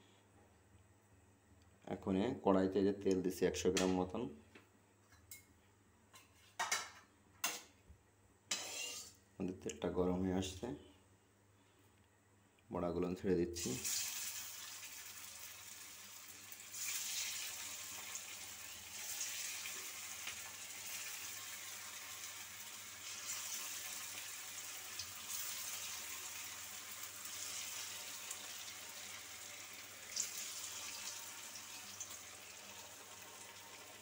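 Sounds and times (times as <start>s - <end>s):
hot oil sizzling in a wok: 13.6s - 34.0s.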